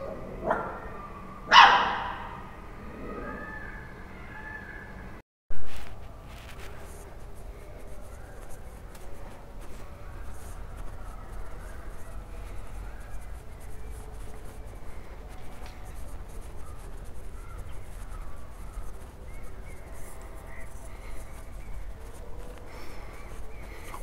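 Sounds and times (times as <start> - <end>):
microphone handling scuffs: 5.5 - 24.0.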